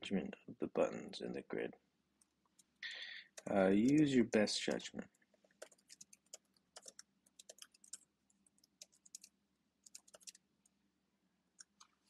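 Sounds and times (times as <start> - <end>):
typing on computer keyboard: 3.3 - 4.2, 5.6 - 10.4.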